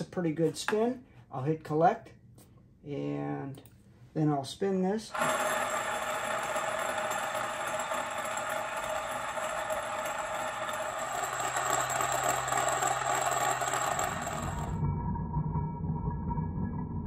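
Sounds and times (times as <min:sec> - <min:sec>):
bearing balls rolling rattle: 0:05.1 - 0:14.8.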